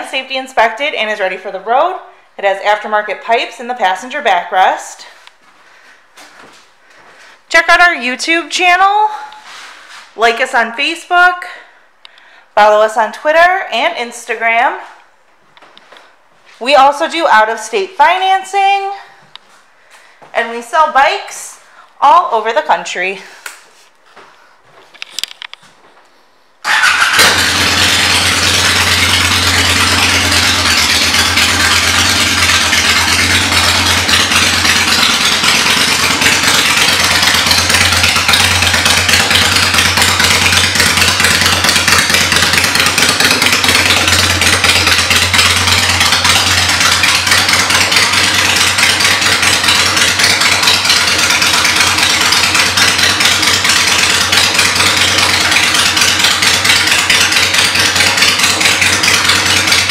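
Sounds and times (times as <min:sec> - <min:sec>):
motorcycle engine idling: 0:26.6 - 0:59.9.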